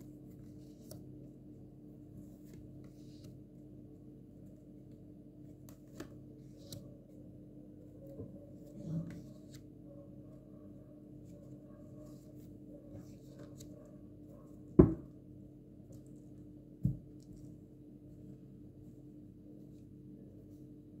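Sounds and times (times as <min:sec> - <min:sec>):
knocks on table: 0:14.8 - 0:15.1.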